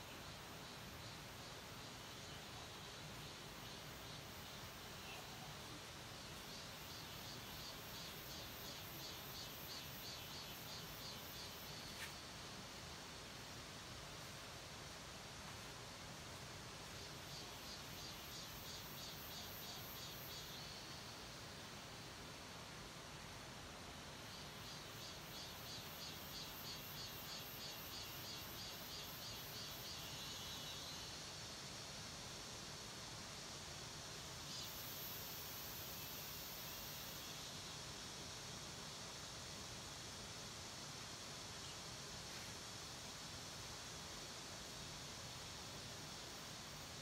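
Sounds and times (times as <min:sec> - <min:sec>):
insect chirping: 0:00.0 - 0:47.0
steady hiss: 0:00.0 - 0:47.0.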